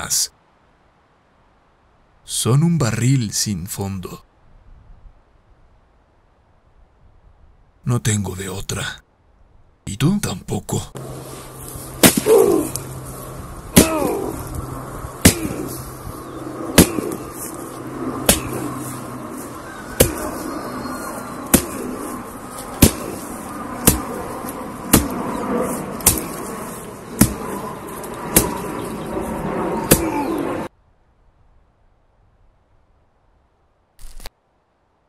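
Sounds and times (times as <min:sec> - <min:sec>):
tool smashing pumpkin on wood: 0:13.8 - 0:14.2, 0:21.5 - 0:21.8, 0:22.8 - 0:23.2, 0:26.0 - 0:26.4.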